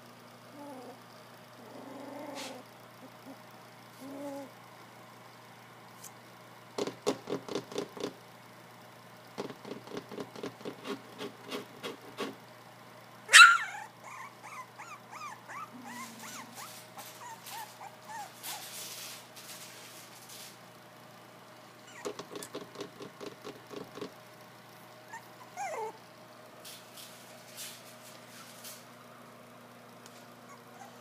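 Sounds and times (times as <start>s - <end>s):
puppy growls: 0.5s - 1.0s, 1.6s - 4.6s, 13.5s - 18.6s, 25.1s - 26.0s, 30.4s - 31.0s
puppy whimpering: 0.5s - 1.0s, 1.6s - 3.4s, 4.0s - 4.6s, 13.3s - 18.8s, 21.8s - 22.5s, 25.1s - 26.0s, 30.4s - 31.0s
puppy barking: 13.3s - 18.3s.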